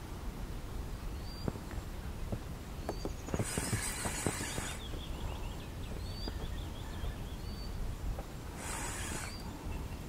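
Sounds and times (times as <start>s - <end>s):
bird chirps: 1.2s - 1.5s, 2.8s - 7.8s.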